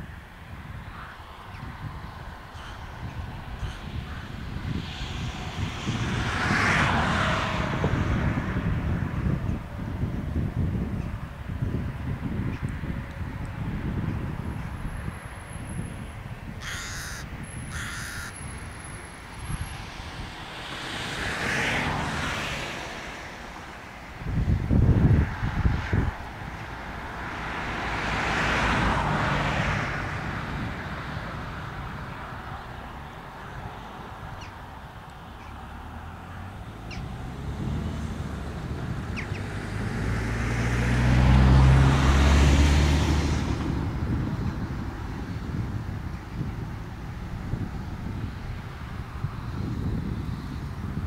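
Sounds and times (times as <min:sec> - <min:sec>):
wind rumble on microphone: 0:00.0 - 0:51.0
vehicle passing by: 0:00.6 - 0:51.0
rook cawing: 0:16.6 - 0:18.4.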